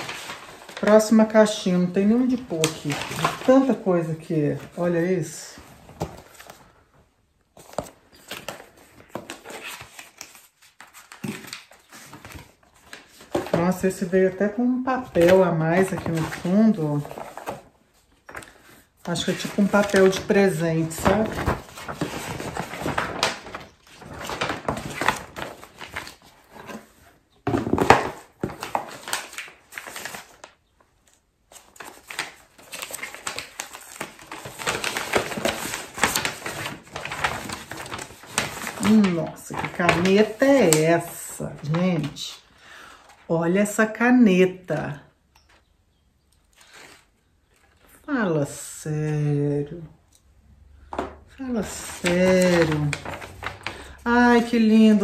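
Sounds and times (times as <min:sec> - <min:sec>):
cardboard box and paper rustling: 0:00.0 - 0:01.4, 0:02.0 - 0:06.8, 0:07.6 - 0:30.6, 0:31.5 - 0:42.3, 0:51.6 - 0:55.0.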